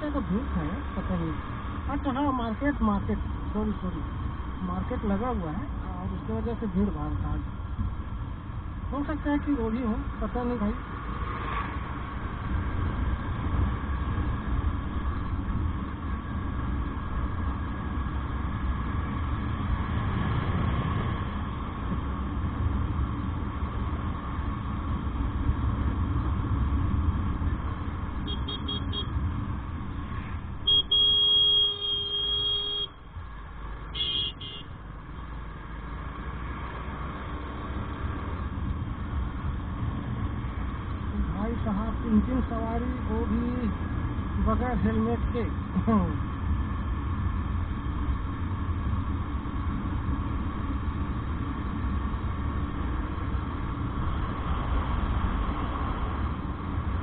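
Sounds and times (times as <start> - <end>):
motorcycle engine and road rumble: 0.0 - 57.0
vehicle horn beeping: 28.2 - 29.1, 30.6 - 33.0, 33.9 - 34.7.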